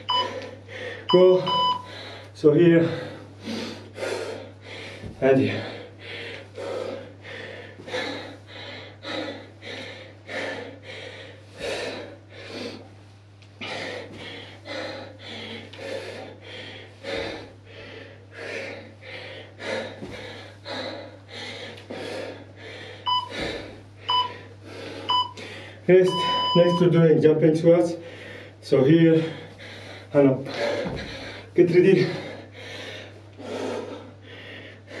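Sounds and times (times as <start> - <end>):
man breathing hard: 0.0 - 26.6, 27.9 - 35.0
short electronic beeps: 0.1 - 0.3, 1.1 - 1.9, 24.1 - 24.3, 26.1 - 26.8.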